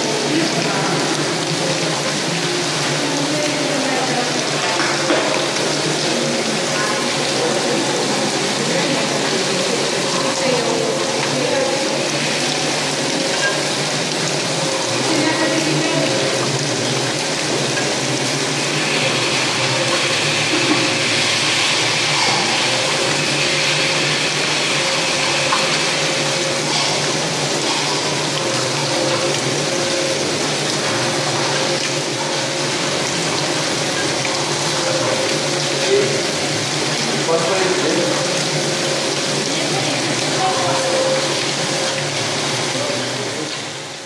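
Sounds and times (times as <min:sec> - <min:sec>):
machine humming: 0:00.0 - 0:44.0.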